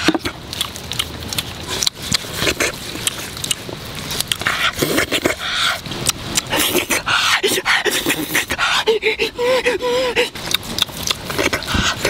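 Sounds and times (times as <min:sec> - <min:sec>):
hands squishing raw meat: 0:00.0 - 0:07.1.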